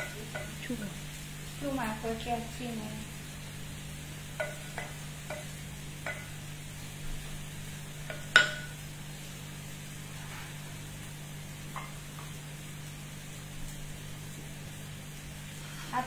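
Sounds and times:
low steady hum: 0.0 - 16.0
spoon knocking metal pot: 4.4 - 6.4, 8.0 - 8.8.

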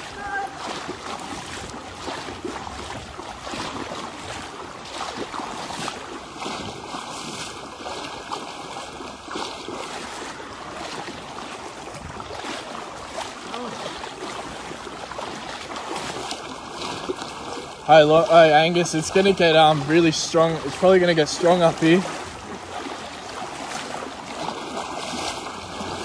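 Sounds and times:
floodwater sloshing around wading legs: 0.0 - 26.0.

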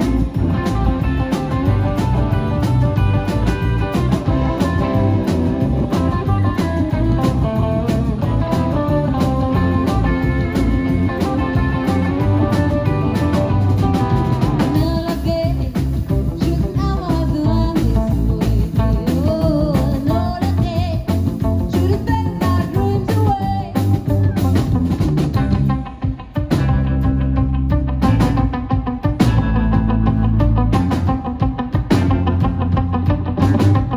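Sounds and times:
rockabilly band playing: 0.0 - 33.9
person singing: 14.7 - 21.1, 21.7 - 24.5.

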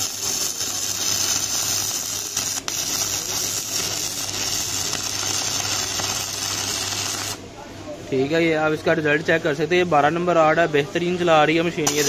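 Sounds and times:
welding arc crackling: 0.0 - 7.4.

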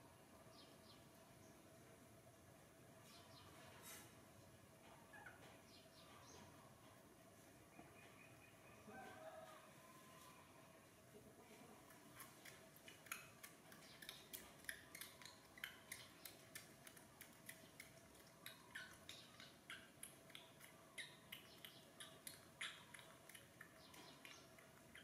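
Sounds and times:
baby monkey sucking clicks: 11.8 - 25.0.

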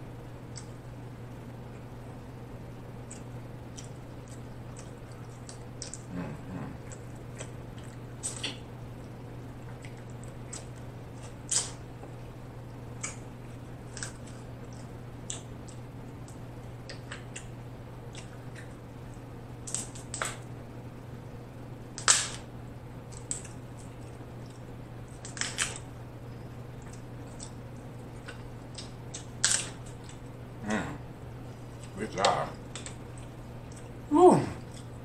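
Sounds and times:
crab shells cracking: 9.7 - 11.8, 12.9 - 18.7, 19.6 - 20.4, 23.1 - 23.9, 24.5 - 25.9, 26.8 - 30.2.

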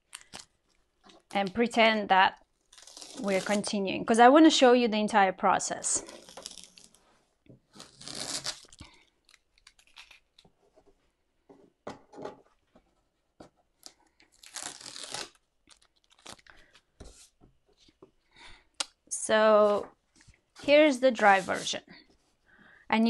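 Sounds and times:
tape ripping off paper: 2.6 - 3.7, 6.0 - 7.0, 7.7 - 10.5, 14.3 - 16.5.

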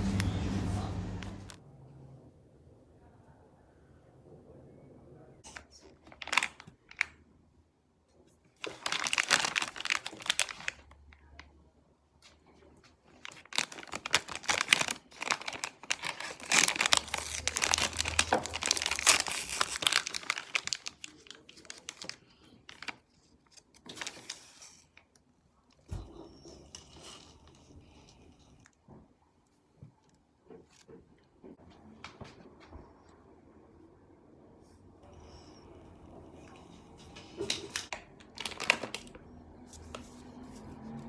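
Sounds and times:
plastic snack bag crinkling: 5.5 - 7.2, 8.6 - 11.5, 13.0 - 25.0, 37.5 - 39.2.

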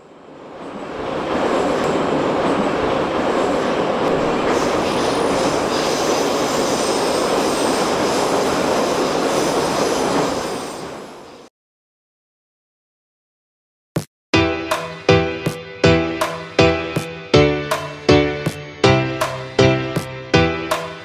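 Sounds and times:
train rumbling on rails: 0.0 - 11.5.

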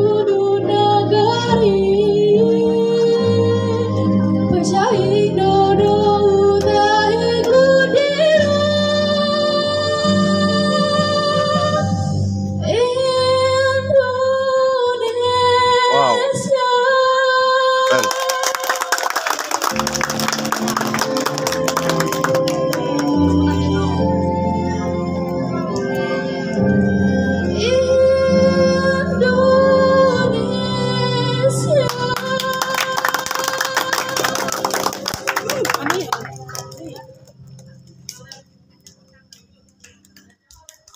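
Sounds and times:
electronic keyboard accompaniment: 0.0 - 16.2, 17.0 - 40.9
girl singing through microphone: 0.0 - 18.6, 27.4 - 34.4
people clapping: 17.8 - 23.8, 31.9 - 40.9.

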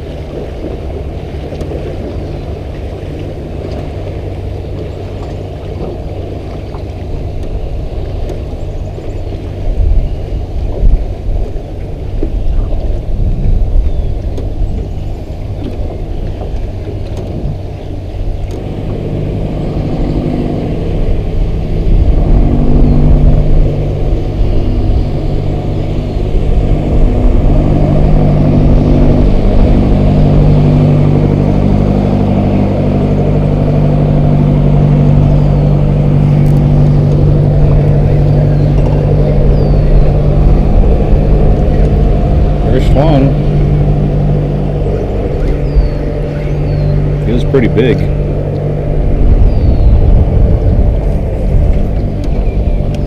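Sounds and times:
boat engine humming: 0.0 - 53.0
low rumble: 0.0 - 53.0.

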